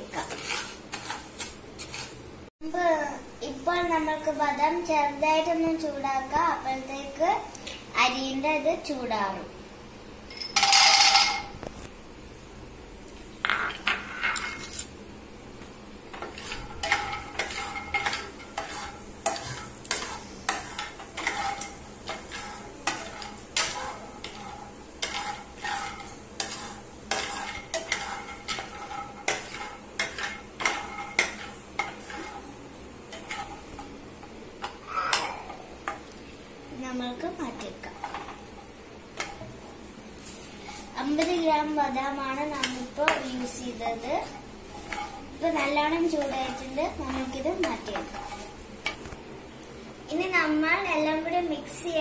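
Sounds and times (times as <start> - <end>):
spatula and nuts scraping a pan: 0.0 - 2.2, 16.1 - 35.2, 37.4 - 49.1.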